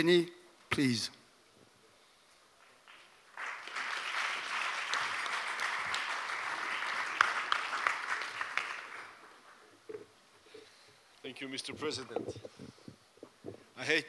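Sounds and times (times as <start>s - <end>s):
audience applauding: 2.8s - 9.7s.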